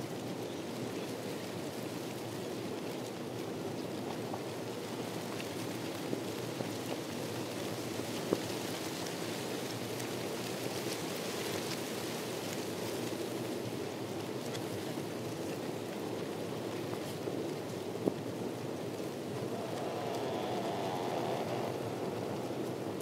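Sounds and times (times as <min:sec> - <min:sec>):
steady outdoor rushing noise: 0:18.9 - 0:23.0
faint ticks: 0:19.4 - 0:22.8.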